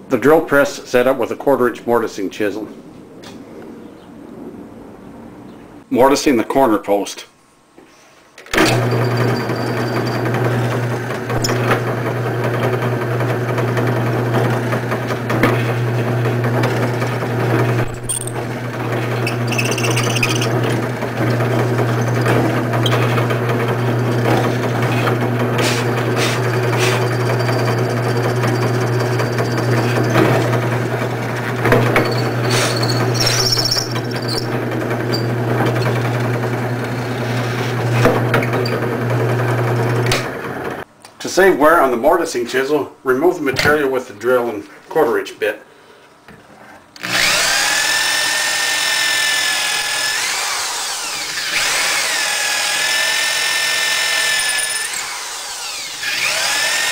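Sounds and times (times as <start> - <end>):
drill press humming: 8.5 - 40.8, 47.0 - 56.9.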